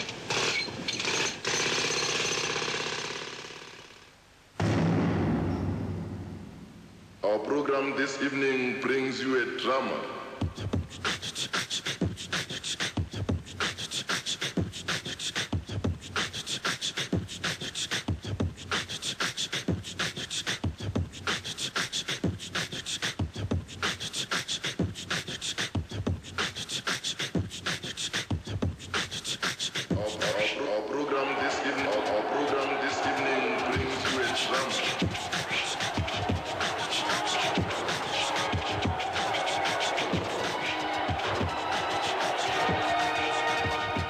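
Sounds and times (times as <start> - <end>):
low thumps: 4.6 - 7.2.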